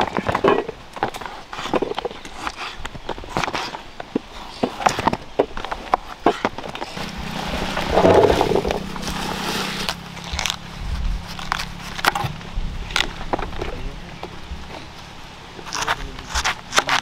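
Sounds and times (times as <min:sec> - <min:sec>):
low steady hum: 0:05.9 - 0:17.0.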